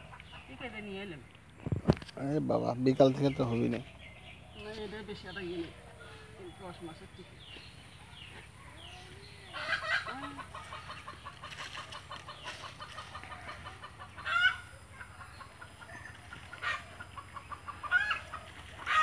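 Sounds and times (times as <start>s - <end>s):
chickens clucking: 0.0s - 19.0s
loud hen calls: 9.4s - 19.0s.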